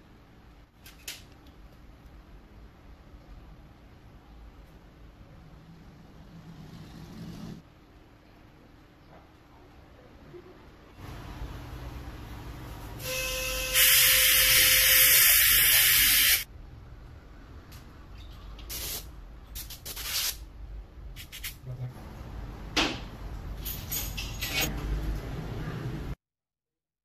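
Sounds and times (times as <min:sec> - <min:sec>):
air syringe hissing: 0:13.8 - 0:16.4.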